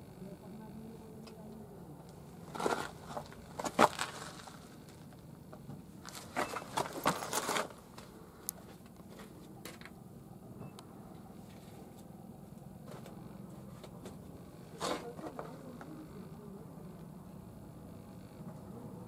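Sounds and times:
faint low hum: 0:00.0 - 0:19.0
gravel and dirt crunching: 0:02.2 - 0:10.0.

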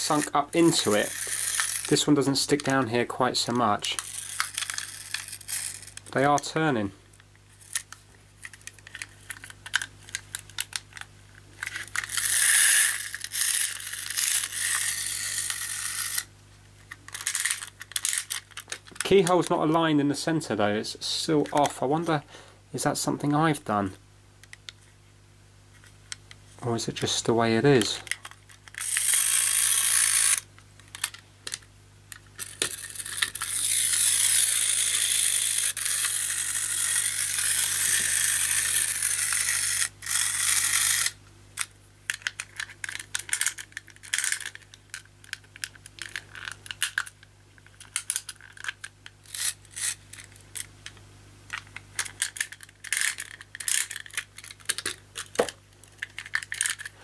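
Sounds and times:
clockwork motor whirring: 0:00.0 - 0:02.7, 0:04.0 - 0:06.0, 0:11.7 - 0:16.3, 0:28.8 - 0:30.5, 0:32.4 - 0:41.2
wind-up mechanism clicking: 0:00.1 - 0:02.0, 0:32.4 - 0:42.4.

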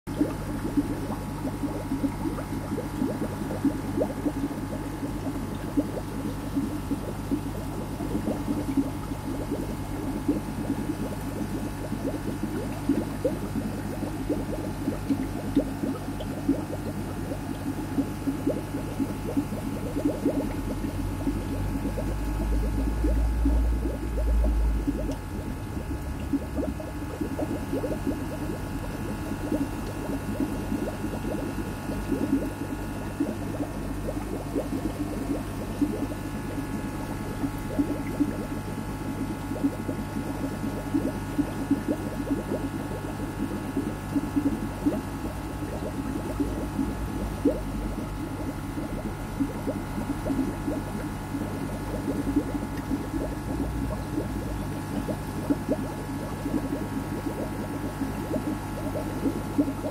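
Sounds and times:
aquarium water bubbling: 0:00.1 - 0:59.9
steady low hum: 0:00.1 - 0:59.9
low rumble: 0:21.9 - 0:27.2.

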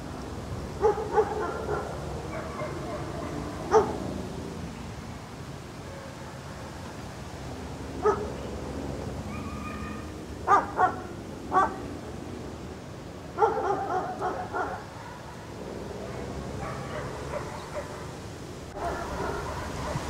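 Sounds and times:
dog yipping: 0:00.8 - 0:03.9, 0:09.3 - 0:11.0, 0:11.6 - 0:11.8
dog barking: 0:00.8 - 0:04.0, 0:05.8 - 0:06.6, 0:08.0 - 0:08.3, 0:09.3 - 0:11.8, 0:13.4 - 0:18.2, 0:18.8 - 0:20.0.

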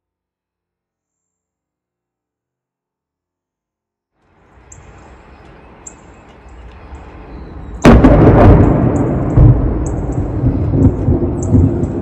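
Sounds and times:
thunder cracking and rumbling: 0:07.8 - 0:12.0.

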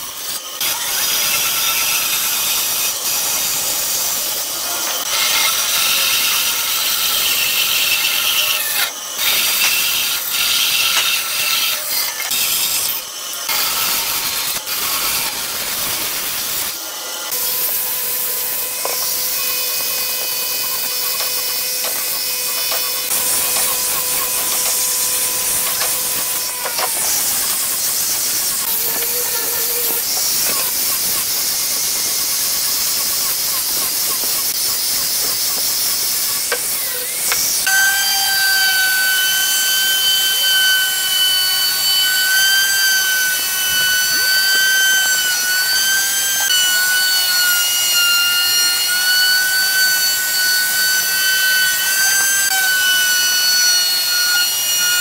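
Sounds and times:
angle grinder sanding wood: 0:00.0 - 0:55.0
router motor whine: 0:00.0 - 0:55.0.

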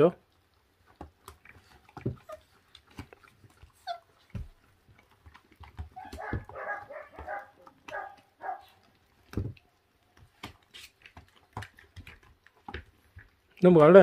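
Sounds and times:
puppies whining: 0:01.5 - 0:09.1.

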